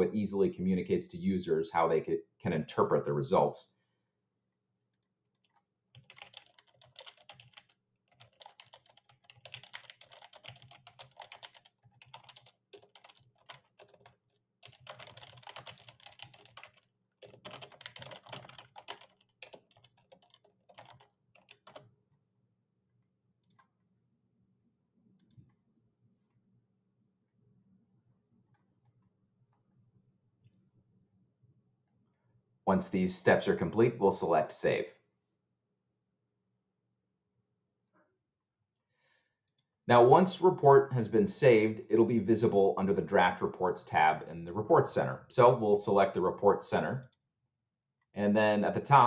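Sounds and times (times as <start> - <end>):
typing on computer keyboard: 5.0 - 21.9
keyboard clicks: 5.4 - 21.8.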